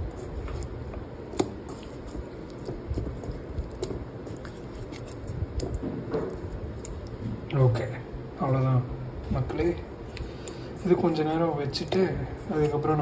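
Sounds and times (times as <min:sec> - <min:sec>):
hand squishing chicken in marinade: 0:00.0 - 0:07.2.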